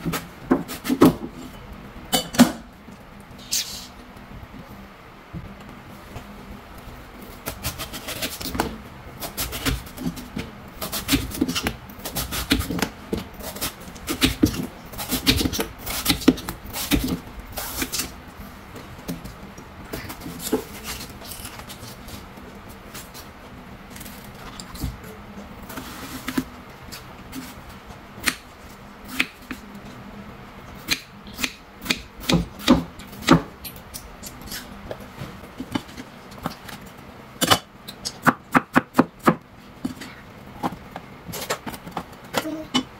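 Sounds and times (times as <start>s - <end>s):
knife shaving watermelon rind: 7.2s - 18.2s, 18.9s - 25.0s.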